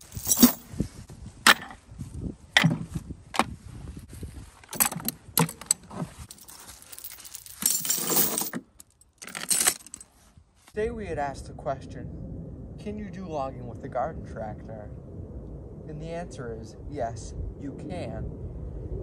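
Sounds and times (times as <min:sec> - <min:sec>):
steel chain rattling: 0:00.0 - 0:00.6, 0:04.7 - 0:10.1.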